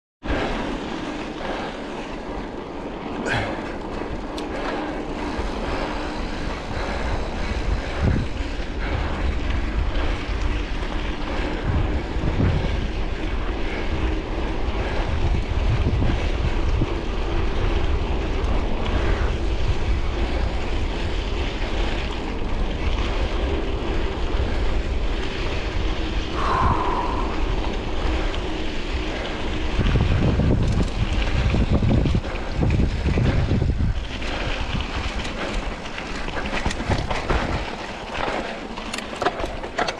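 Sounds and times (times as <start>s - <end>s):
bike tyres rolling on dirt: 0.2s - 39.9s
wind on microphone: 4.2s - 38.5s
bike knocks and rattles: 29.8s - 39.9s.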